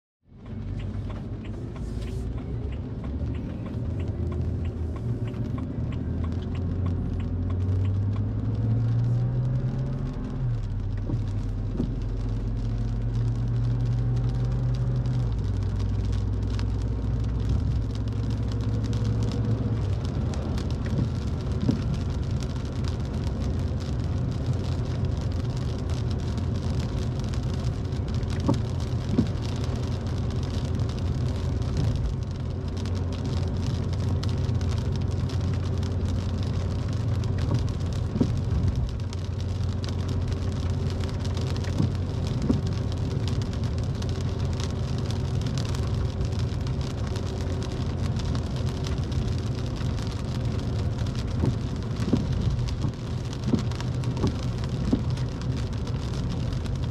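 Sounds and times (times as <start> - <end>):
car engine hum: 0.3 - 56.9
sharp ticks: 0.4 - 8.3
tyre and rain hiss: 0.8 - 56.9.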